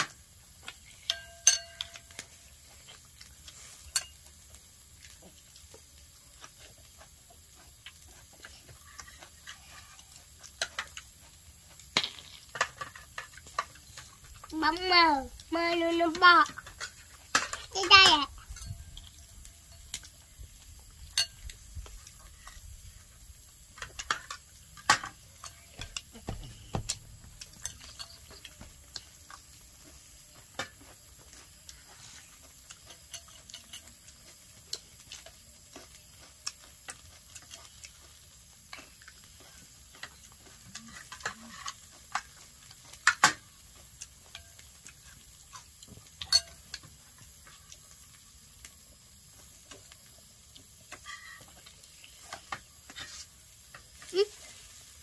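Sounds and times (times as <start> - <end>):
cutlery clinking on plates: 1.1 - 2.3, 3.8 - 4.2, 21.1 - 21.5, 27.5 - 28.6, 45.5 - 46.9.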